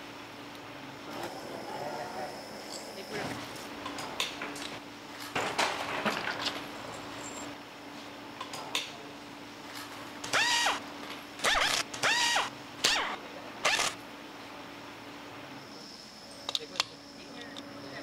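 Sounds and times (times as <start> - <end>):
pneumatic screwdriver whirring: 10.2 - 10.8, 11.4 - 14.0.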